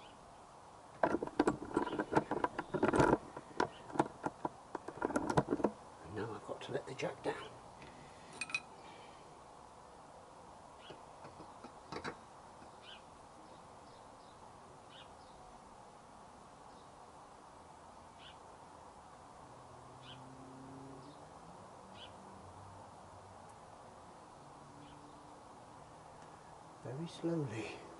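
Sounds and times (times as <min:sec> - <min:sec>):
bird chirping faintly: 0:10.7 - 0:15.7, 0:18.0 - 0:18.5, 0:19.9 - 0:21.3, 0:24.4 - 0:25.4.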